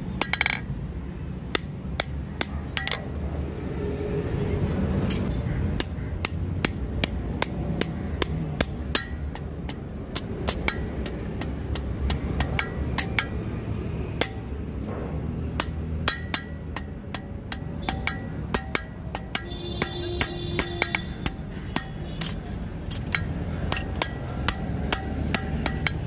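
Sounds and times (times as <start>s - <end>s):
hammer striking steel on anvil: 5.8s - 13.4s, 14.2s - 26.0s.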